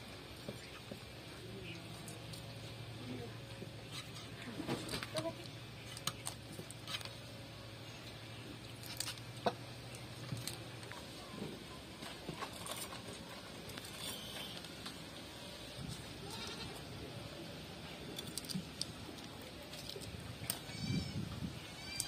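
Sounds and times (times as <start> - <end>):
low outdoor background noise: 0.0 - 22.0
faint animal calls: 20.5 - 22.0.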